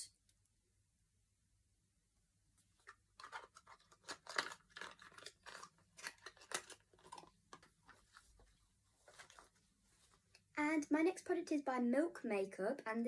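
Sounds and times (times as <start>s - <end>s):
packaging crinkling: 2.8s - 8.4s.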